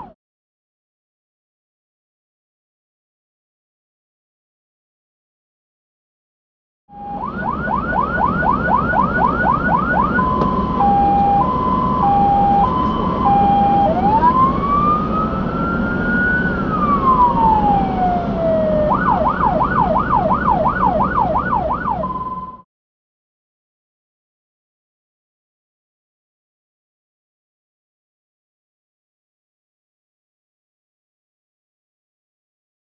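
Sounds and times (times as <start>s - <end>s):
fire engine siren: 6.9s - 22.7s
truck engine and road noise: 6.9s - 22.7s.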